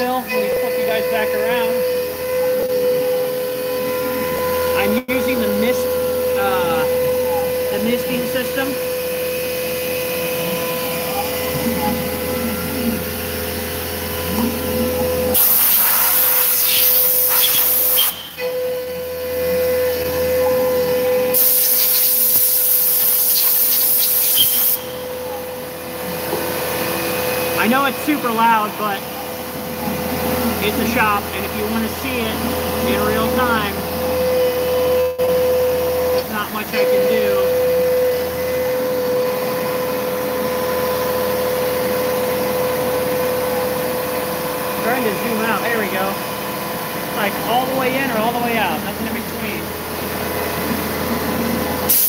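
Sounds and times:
mill cutting steel whine: 0.0 - 52.0
air blow gun hiss: 15.4 - 18.3, 21.3 - 24.9.

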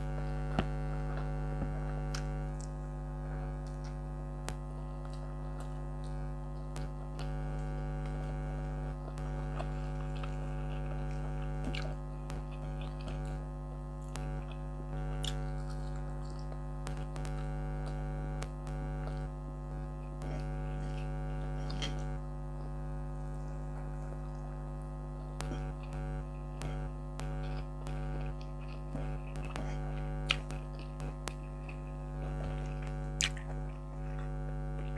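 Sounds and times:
air conditioner humming: 0.0 - 34.9
person chewing food: 0.2 - 19.3, 20.0 - 24.6, 25.2 - 34.9.

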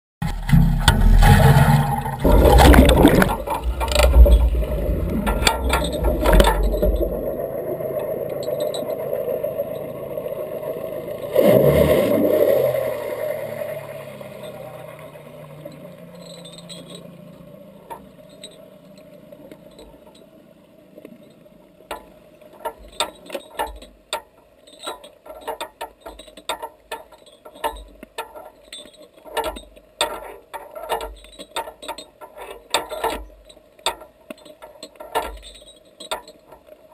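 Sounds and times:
clicks and light knocks: 0.2 - 7.3, 21.0 - 36.9
water splashing and churning: 0.2 - 19.3
muffled underwater rushing: 0.2 - 19.4.

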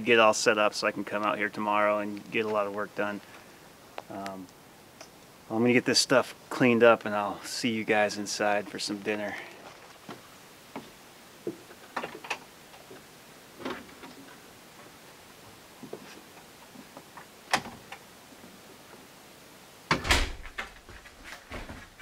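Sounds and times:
door clicking open and shut: 17.5 - 18.0, 19.9 - 22.0
latch click: 19.9 - 20.8
footsteps and gear clattering: 20.5 - 22.0.

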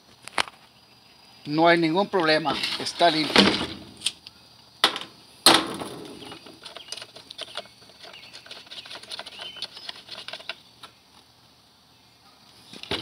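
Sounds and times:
small parts clicking and tapping: 6.4 - 11.0.

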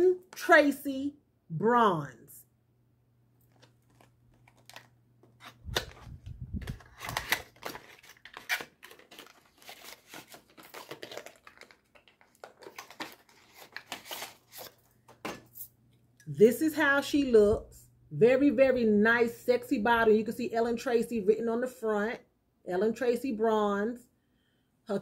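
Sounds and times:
cardboard packaging rustling: 3.4 - 15.3.

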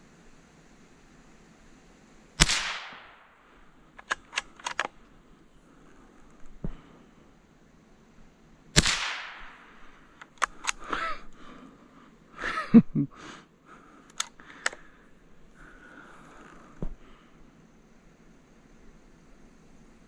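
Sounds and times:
rifle shot with echo: 2.4 - 3.4, 8.8 - 9.8
rifle handling clicks and knocks: 3.9 - 5.1, 10.1 - 11.0, 14.1 - 14.9.

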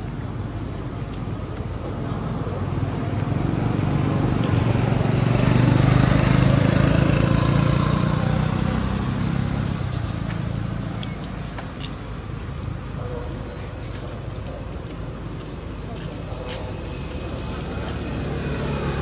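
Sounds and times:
vehicle engine passing by: 3.2 - 11.0, 16.2 - 19.0.

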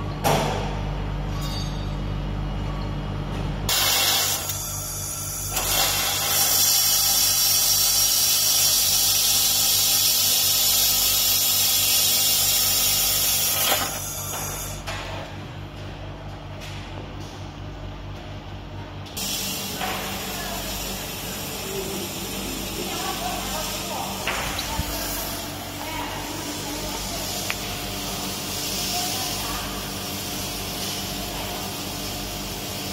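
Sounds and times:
low machine hum: 0.0 - 32.9
laser welder hissing and crackling: 3.7 - 14.8, 19.2 - 25.6, 26.2 - 32.9.

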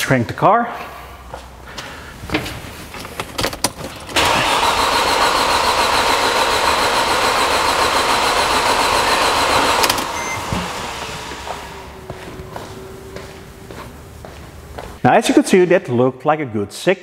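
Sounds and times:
starter motor cranking engine: 3.7 - 11.7.

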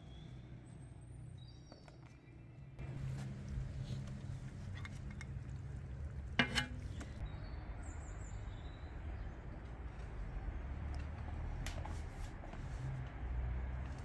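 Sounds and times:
metal clank: 6.4 - 7.2.

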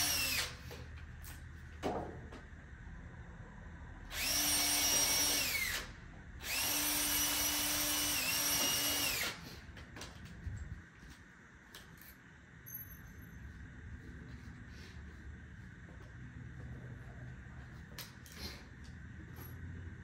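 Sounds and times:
cordless drill into wood: 0.0 - 0.8, 4.1 - 9.4.

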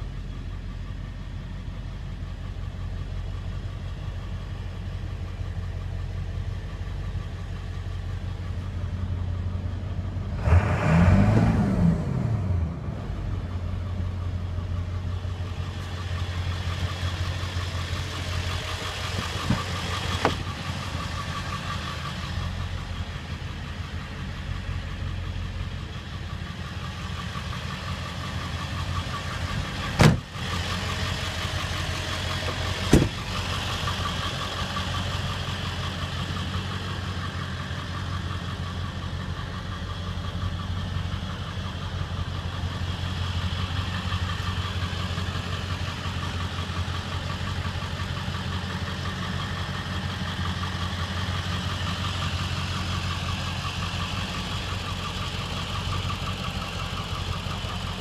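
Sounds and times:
diesel engine idling with clatter: 0.0 - 58.0
sharp engine knocks: 19.2 - 20.5, 29.9 - 30.4, 32.5 - 33.3.

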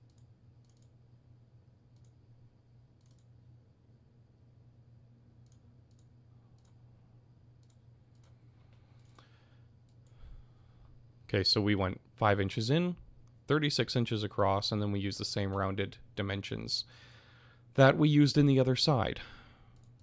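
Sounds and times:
computer mouse clicks: 0.0 - 1.0, 1.9 - 2.2, 3.0 - 3.3, 5.4 - 6.8, 7.6 - 10.2
low steady hum: 0.0 - 20.0.

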